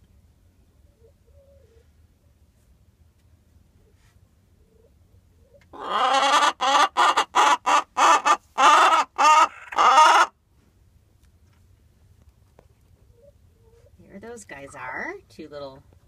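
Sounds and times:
hen squawking: 5.8s - 10.3s.

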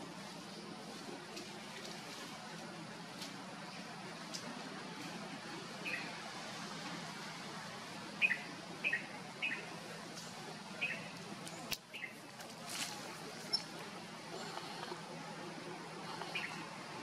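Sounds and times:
faint steady hiss: 0.0s - 17.0s
bird chirping: 8.2s - 9.7s, 10.8s - 12.2s, 13.3s - 15.0s, 16.1s - 16.7s.

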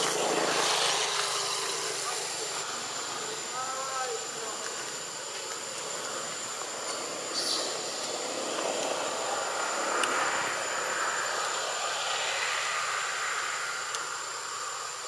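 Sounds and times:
even hiss: 0.0s - 15.0s
thin high steady whine: 0.0s - 15.0s.

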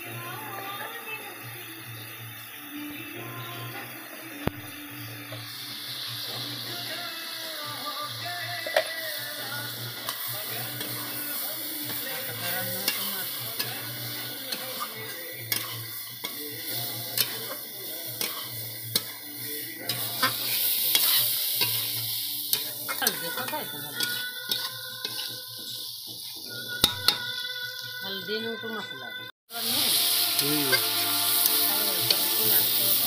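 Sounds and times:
chicken sizzling in oil: 0.0s - 28.4s, 29.5s - 33.0s
metal spatula scraping pan: 9.9s - 17.6s, 18.2s - 27.2s.

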